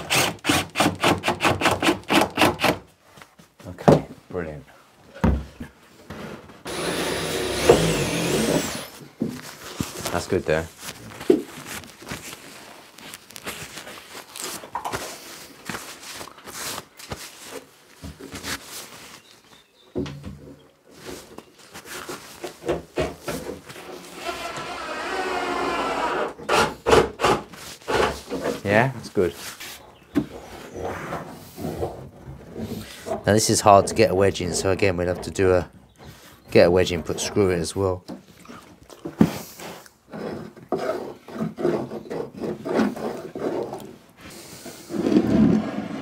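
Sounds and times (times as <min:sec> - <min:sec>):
wood rubbing and scraping: 0:05.5 - 0:19.8, 0:20.4 - 0:46.0
small power tool motor: 0:06.7 - 0:09.0, 0:24.2 - 0:26.4.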